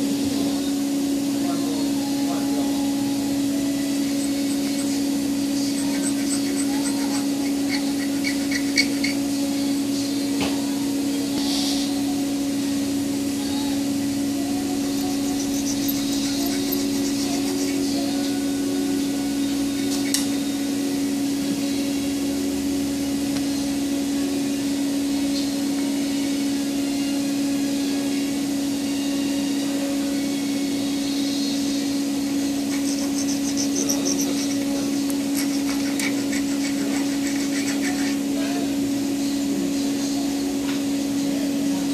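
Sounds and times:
low machine hum: 0.0s - 41.9s
knife blade scraping wire: 4.1s - 9.4s, 14.8s - 18.2s, 32.6s - 38.4s.

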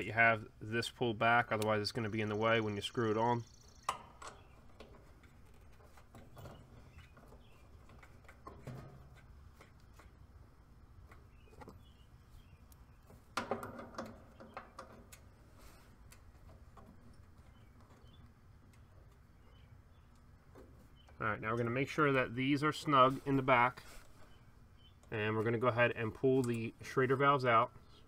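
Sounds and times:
faint bird chirps: 2.0s - 4.7s
knocks and rustling: 3.9s - 10.2s, 13.0s - 18.2s
small metallic clicks and taps: 12.7s - 15.3s.

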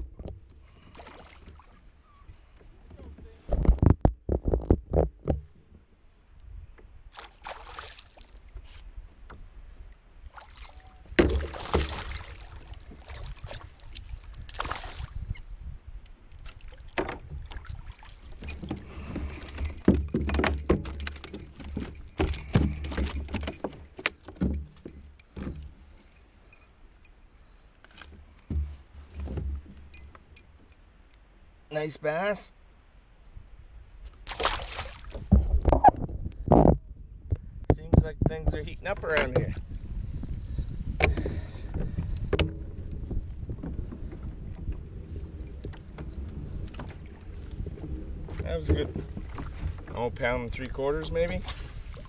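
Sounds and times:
knocks and rattles from boat: 0.0s - 1.8s, 2.4s - 5.9s, 10.9s - 15.4s, 16.8s - 26.2s, 27.9s - 30.6s, 35.1s - 52.0s
water splashing against kayak hull: 0.1s - 5.8s, 7.1s - 15.4s, 16.3s - 26.0s, 34.1s - 36.1s, 40.5s - 52.0s
wind gusts on microphone: 12.0s - 19.7s, 35.0s - 52.0s.

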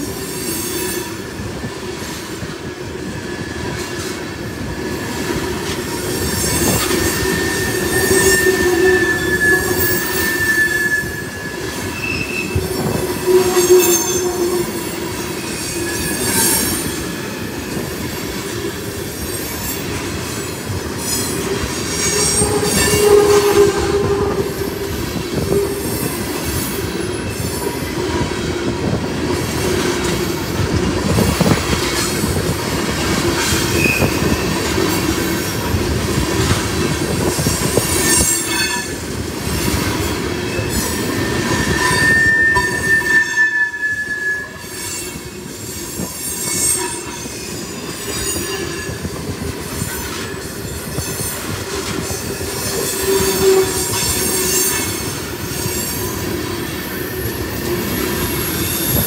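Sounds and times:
train wheels rumbling on rail: 0.0s - 59.0s
wheel squeal: 5.8s - 17.8s, 19.1s - 27.9s, 33.4s - 34.6s, 37.2s - 39.0s, 40.5s - 49.2s, 49.8s - 59.0s.

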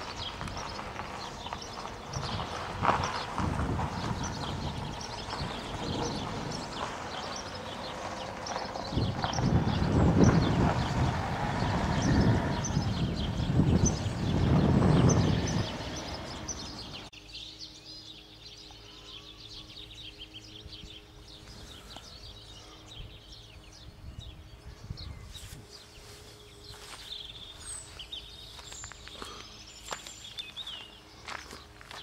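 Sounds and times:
wind rumble on microphone: 0.0s - 17.1s, 20.6s - 29.0s
small birds chirping: 0.0s - 32.0s
footsteps rustling in grass: 25.1s - 32.0s.

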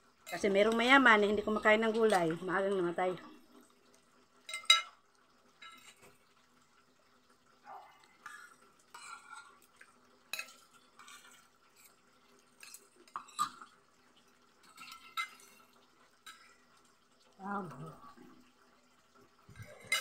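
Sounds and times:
cutlery scraping a ceramic plate: 10.3s - 11.9s, 19.7s - 20.0s.

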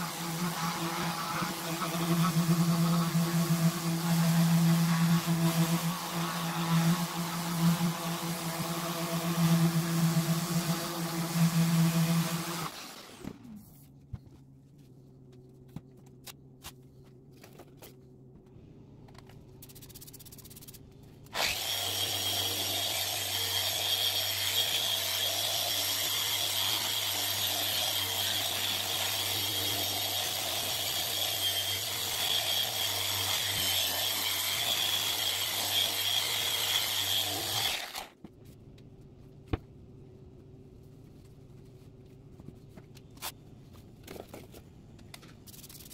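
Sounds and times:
orbital sander on plastic: 0.0s - 13.6s, 21.3s - 38.2s.

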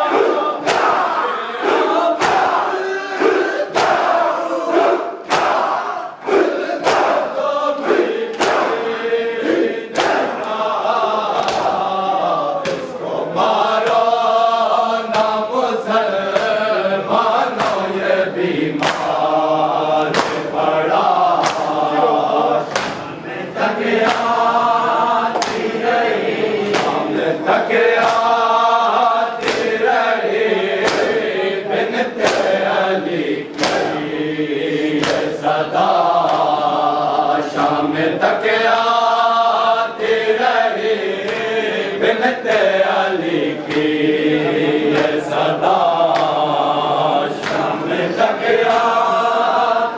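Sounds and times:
group chanting in unison: 0.0s - 49.9s
hands slapping chests: 0.1s - 12.0s, 12.6s - 13.0s, 13.7s - 14.4s, 15.0s - 15.5s, 16.3s - 18.0s, 18.6s - 23.2s, 23.8s - 24.7s, 25.3s - 29.9s, 30.8s - 31.4s, 32.2s - 32.8s, 33.4s - 34.1s, 34.8s - 35.5s, 36.1s - 37.9s, 41.2s - 41.6s, 43.3s - 44.0s, 44.8s - 46.6s, 47.2s - 47.9s, 48.5s - 49.1s.

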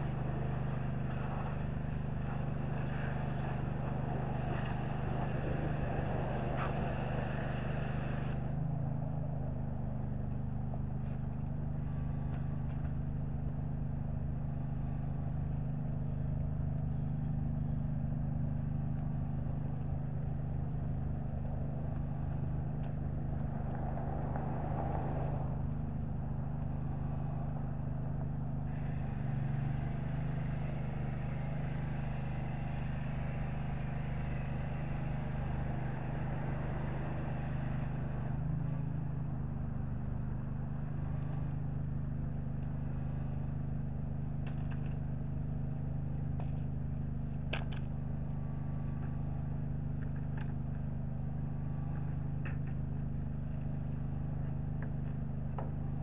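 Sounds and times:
engine idling drone: 0.0s - 56.0s
hiss: 28.7s - 38.4s.

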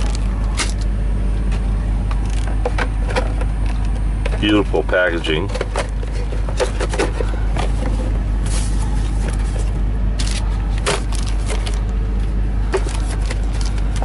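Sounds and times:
truck engine idling: 0.0s - 14.0s
cardboard packaging handled: 5.6s - 11.9s.

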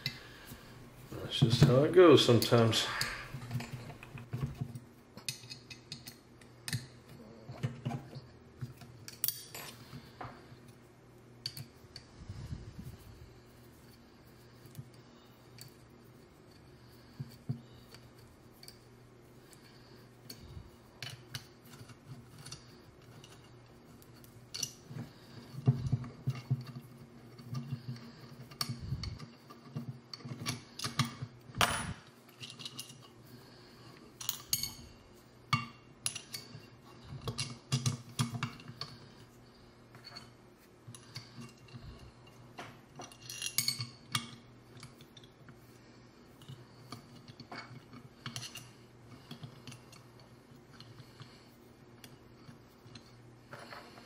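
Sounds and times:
metal parts clicking and clinking: 5.2s - 10.0s, 19.5s - 33.2s, 34.2s - 34.9s, 40.9s - 45.4s.

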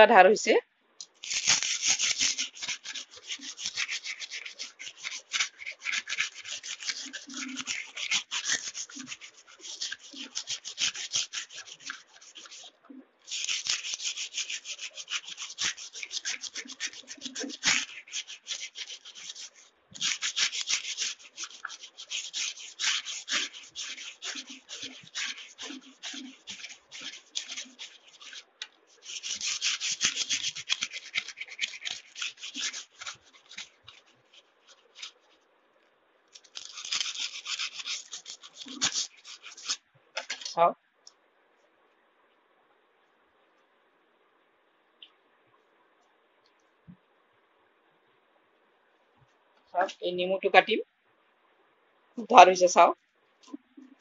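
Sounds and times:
sandpaper rasping on knife blade: 1.2s - 12.7s, 13.3s - 35.3s, 36.4s - 40.5s.

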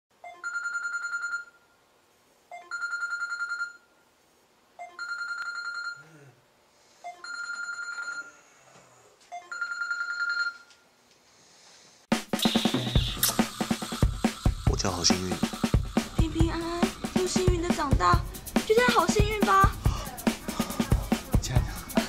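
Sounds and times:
electronic ringer trilling: 12.4s - 14.7s.

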